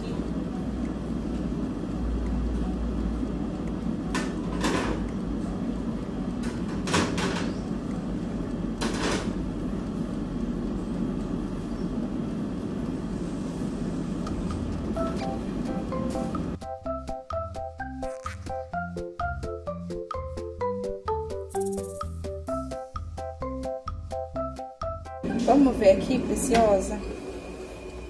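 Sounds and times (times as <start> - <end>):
steady low hum: 0.0 - 19.9.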